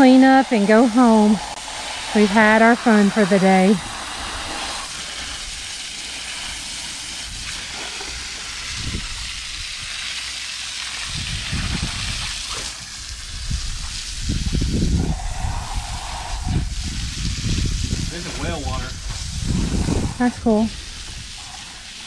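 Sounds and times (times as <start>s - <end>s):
hose spraying water: 0.0s - 22.0s
low rumbling thumps: 13.4s - 21.4s.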